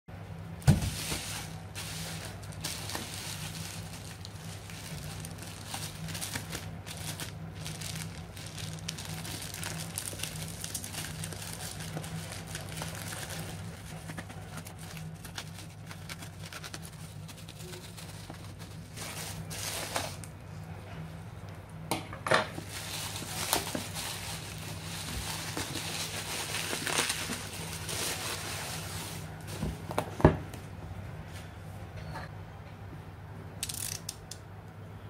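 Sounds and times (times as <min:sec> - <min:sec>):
steady low hum: 0:00.1 - 0:35.0
bubble wrap crinkling: 0:00.6 - 0:20.3, 0:22.6 - 0:30.0.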